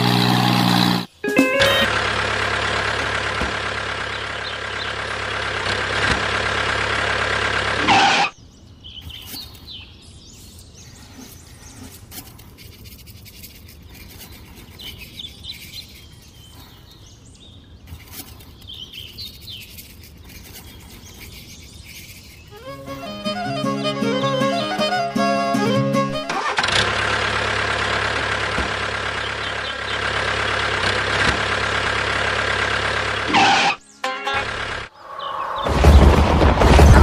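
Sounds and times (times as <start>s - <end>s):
faint bird chirps: 8.3s - 22.9s, 34.9s - 35.7s.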